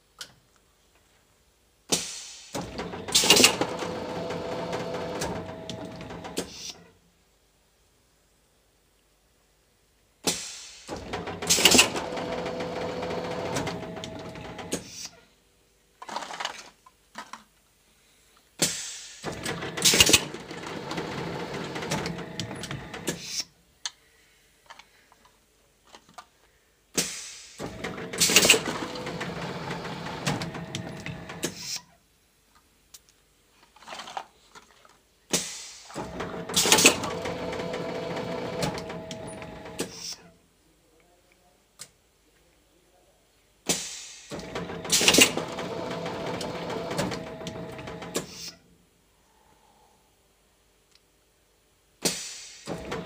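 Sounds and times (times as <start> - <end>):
air blowing hiss: 52.0 - 52.7.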